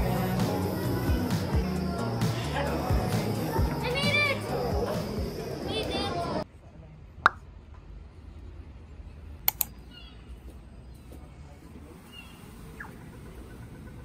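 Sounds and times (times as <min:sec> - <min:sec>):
low traffic rumble: 0:00.0 - 0:14.0
sharp clicks: 0:09.4 - 0:09.8.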